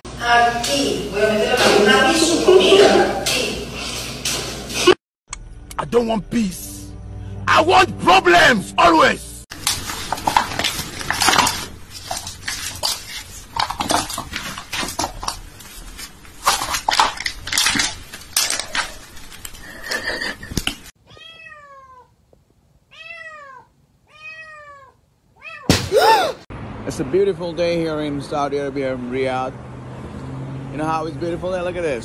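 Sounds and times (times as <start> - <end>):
cat meowing: 21.0 - 22.2, 22.9 - 26.3.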